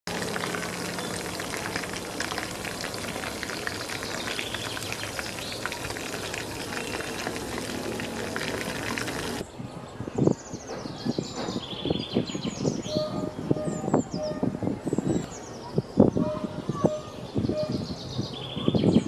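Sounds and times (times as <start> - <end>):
chicken wings deep-frying in oil: 0.1 - 9.4.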